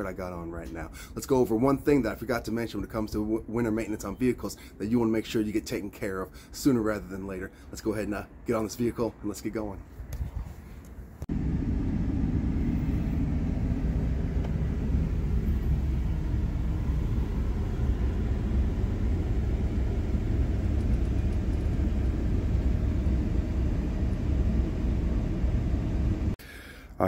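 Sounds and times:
pickup truck engine rumble: 0:11.3 - 0:26.4.

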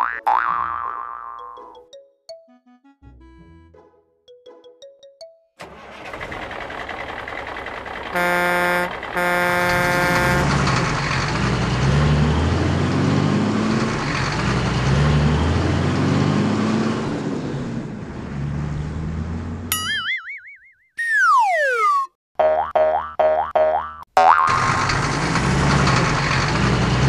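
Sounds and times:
cartoon truck engine rumbling: 0:00.0 - 0:27.0
truck horn honks: 0:08.1 - 0:10.7.

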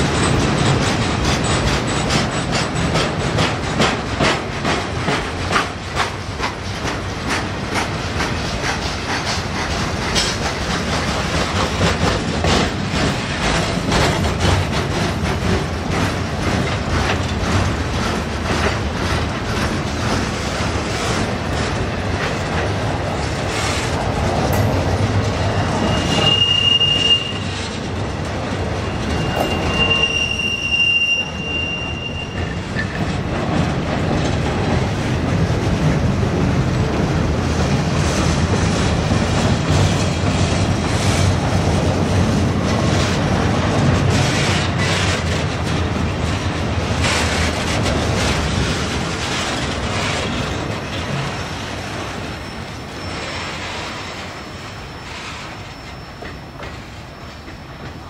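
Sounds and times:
train wheels clicking on rail joints: 0:00.0 - 0:58.0
train wheels squealing: 0:24.7 - 0:33.2, 0:49.3 - 0:58.0.

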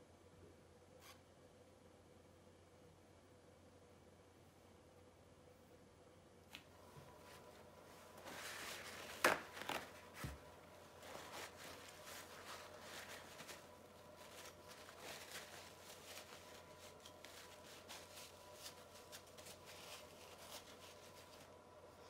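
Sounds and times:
paper towel rustling: 0:06.8 - 0:22.0.

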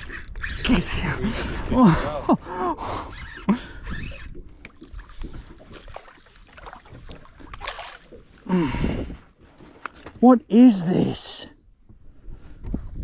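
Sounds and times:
fish splashing at water surface: 0:05.0 - 0:08.2.

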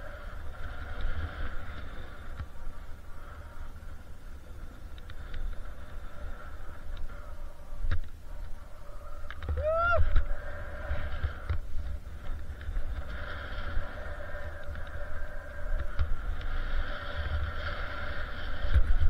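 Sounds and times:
wind rumble on microphone: 0:00.0 - 0:19.0.

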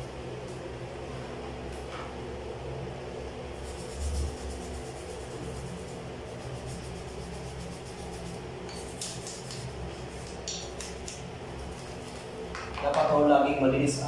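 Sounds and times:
steady low hum: 0:00.0 - 0:14.0
toothbrush scrubbing metal faucet: 0:03.6 - 0:12.2.

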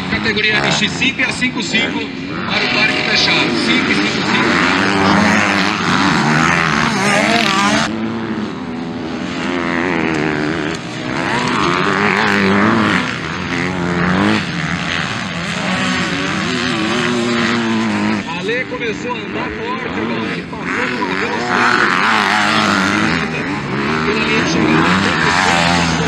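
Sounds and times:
motocross bike engines revving: 0:00.0 - 0:26.0.

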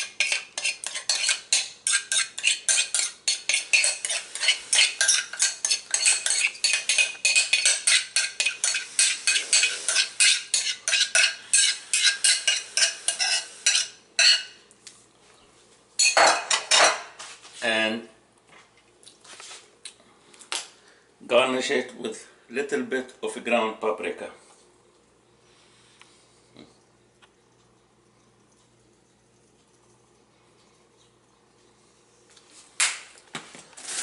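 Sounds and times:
metal spoon scraping bowl: 0:00.0 - 0:14.5.

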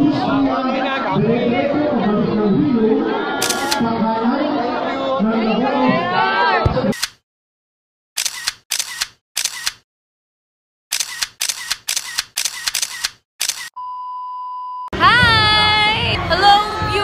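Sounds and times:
camera shutter clicks: 0:03.4 - 0:03.8, 0:07.0 - 0:07.2, 0:08.2 - 0:09.8, 0:10.9 - 0:13.7
steady beep tone: 0:13.7 - 0:14.9
music with singing: 0:15.0 - 0:17.0.

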